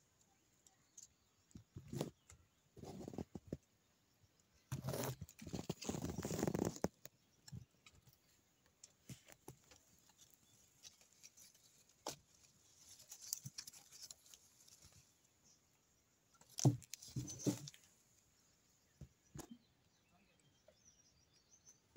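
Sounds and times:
wet leaves rustling by hand: 9.1s - 15.3s.

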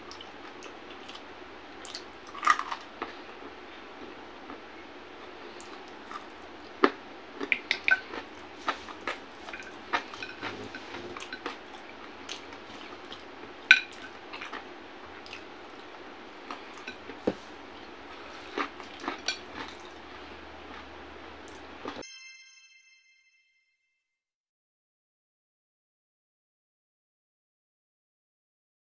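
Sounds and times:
chewing and lip-smacking: 0.1s - 3.3s, 5.5s - 22.0s
brief ringing tone: 22.0s - 23.8s.

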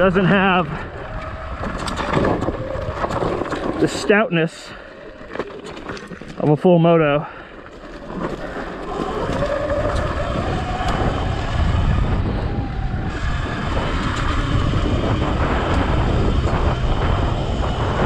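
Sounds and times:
wind on microphone: 0.0s - 3.9s, 8.1s - 18.0s
tyre and chassis rumble: 0.0s - 18.0s
faint rising whine: 8.4s - 18.0s.

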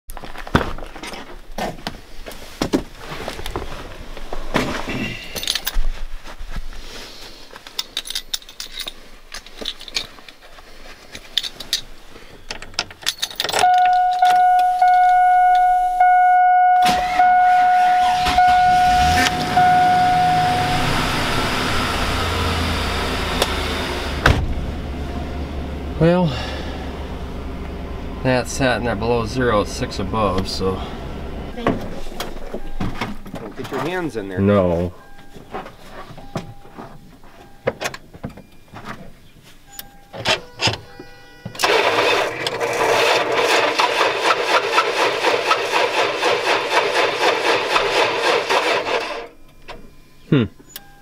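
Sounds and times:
keys jangling: 5.3s - 5.8s, 7.8s - 10.2s, 12.6s - 14.8s
truck engine cranking and idling: 11.5s - 51.0s
warning chime pulses: 13.6s - 22.6s, 34.9s - 37.8s, 39.7s - 41.6s, 49.5s - 51.0s.

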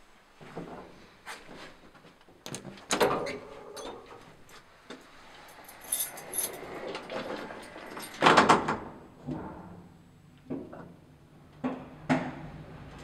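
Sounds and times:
keys jingling: 5.5s - 6.6s.

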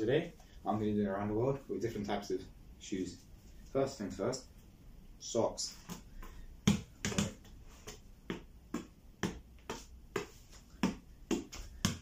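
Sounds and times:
football thudding on foot: 5.9s - 12.0s.

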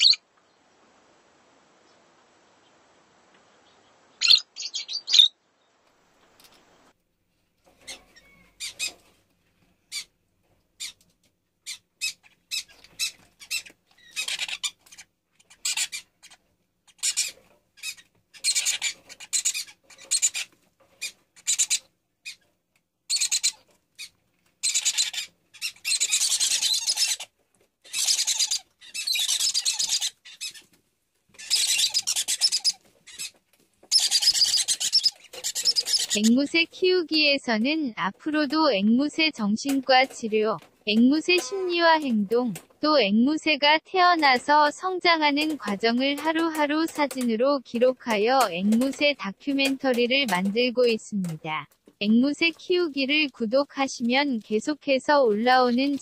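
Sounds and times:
nestlings raspy begging calls: 0.0s - 0.2s, 4.2s - 5.3s, 11.6s - 22.4s, 23.1s - 30.7s, 31.4s - 36.4s.

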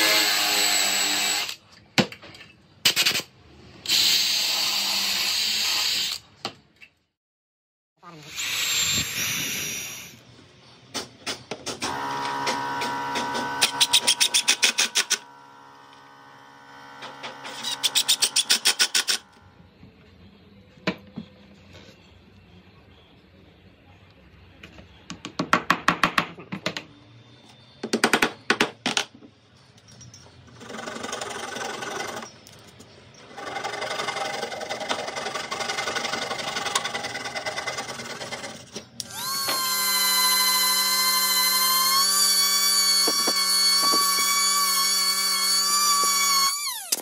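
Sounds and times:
palm sander whining: 39.1s - 46.9s.

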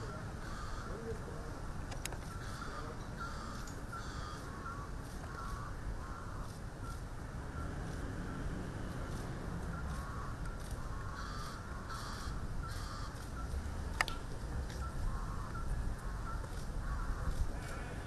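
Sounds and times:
crows cawing: 0.0s - 1.2s, 2.3s - 6.6s, 9.8s - 13.3s, 15.0s - 18.0s.

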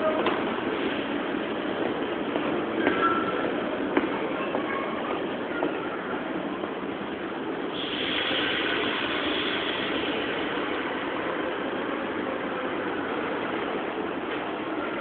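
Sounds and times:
train rumbling: 0.0s - 15.0s
hiss: 7.7s - 11.4s.

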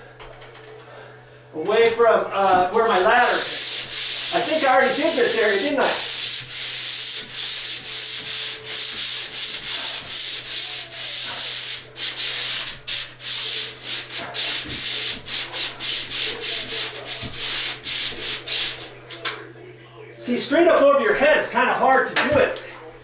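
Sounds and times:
pole sander rasping on ceiling: 2.3s - 19.0s.

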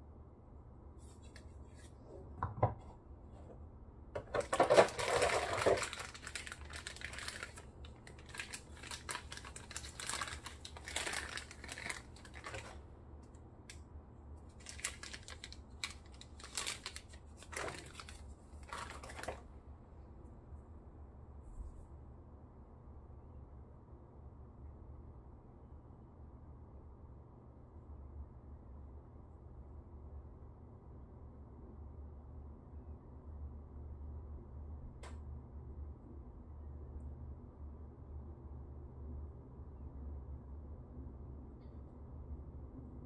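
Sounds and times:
knock: 2.4s - 2.9s
plastic wrapping crinkling: 4.2s - 12.8s, 14.4s - 19.5s.

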